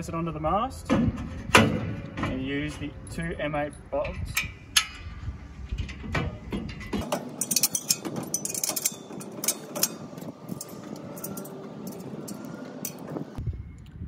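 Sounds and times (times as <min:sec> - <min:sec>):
steady background noise: 0:00.0 - 0:14.0
metallic clicks of bolts and nuts: 0:05.7 - 0:13.2.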